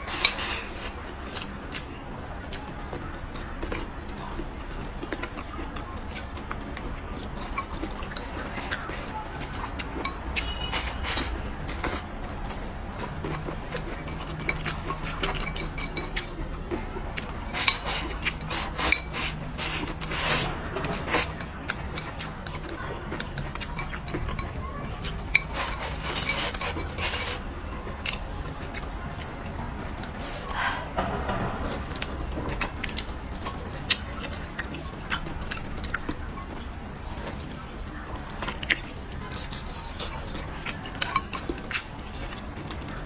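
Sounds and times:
chewing sticky meat: 0.0 - 30.6, 31.7 - 43.0
eating mouth sounds: 2.5 - 29.4
slurp: 17.5 - 21.4.

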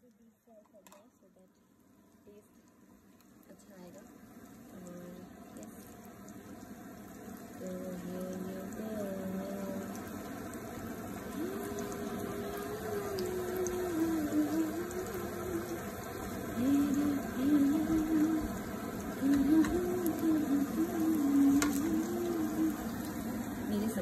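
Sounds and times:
oil sizzling in a frying pan: 0.7 - 24.0
simple low wavering tune: 11.3 - 23.9.

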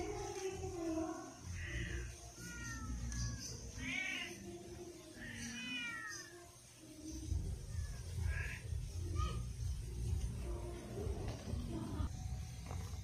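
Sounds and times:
cat meowing: 1.5 - 4.5, 5.1 - 6.4.

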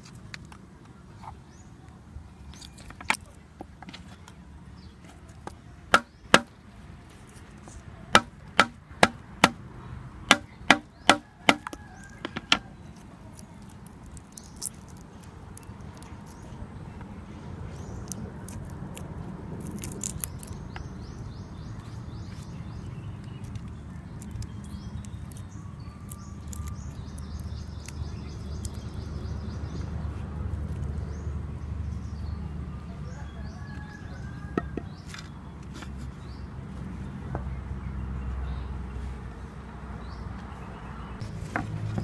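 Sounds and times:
birds chirping: 0.8 - 18.7, 19.7 - 42.0
garlic skins crackling: 10.3 - 31.5.

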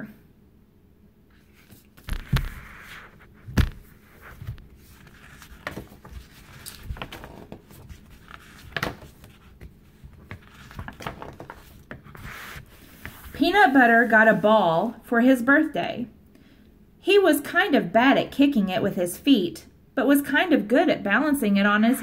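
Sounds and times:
paper rustling: 1.3 - 14.5
book thumps on table: 2.0 - 2.7, 3.4 - 4.6.

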